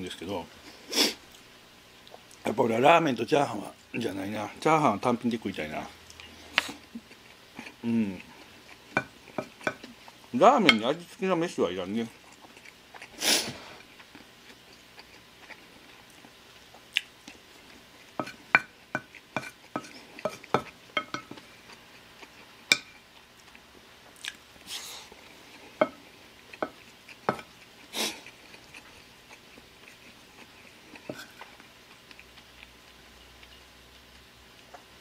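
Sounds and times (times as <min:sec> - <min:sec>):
soft chewing: 0:00.6 - 0:02.6, 0:03.6 - 0:10.8, 0:11.8 - 0:35.0
spoon scraping ceramic plate: 0:31.0 - 0:31.4.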